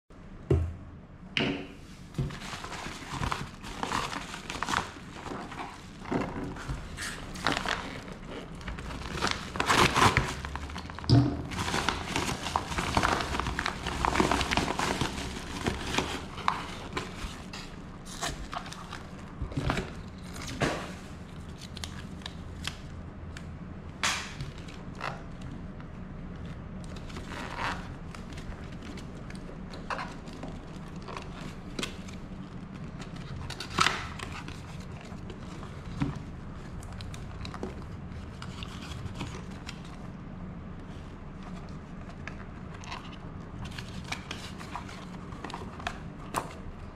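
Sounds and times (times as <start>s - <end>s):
plastic bag crinkling: 2.3s - 20.6s.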